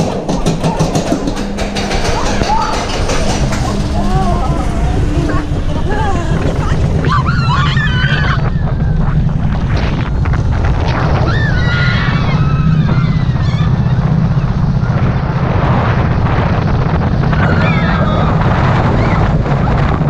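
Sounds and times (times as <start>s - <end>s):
roller coaster rumbling on track: 0.0s - 20.0s
wind buffeting microphone: 0.0s - 20.0s
riders calling out: 0.2s - 9.3s.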